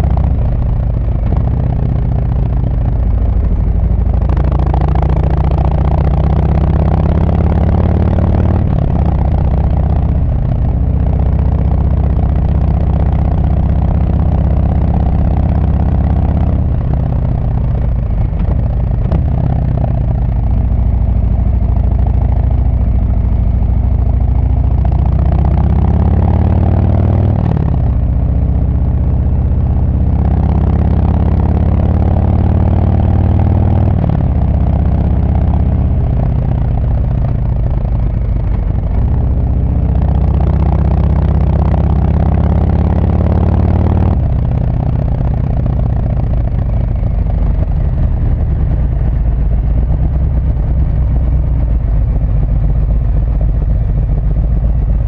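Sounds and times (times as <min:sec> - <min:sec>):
motorcycle exhaust note: 0:00.0 - 0:55.0.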